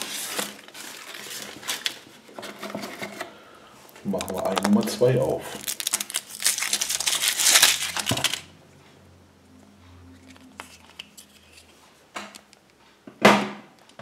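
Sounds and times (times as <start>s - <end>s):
foil wrapper crinkling and tearing: 0.0s - 2.2s, 4.0s - 8.5s
chocolate shell clicks and rustles: 4.0s - 8.5s.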